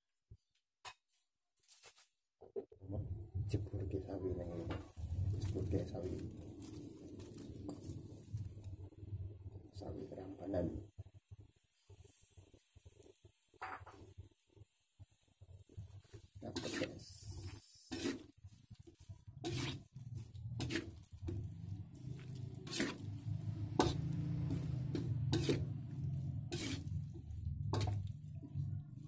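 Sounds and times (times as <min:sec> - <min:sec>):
spatula scraping metal wok: 0:04.3 - 0:08.8, 0:15.7 - 0:29.0.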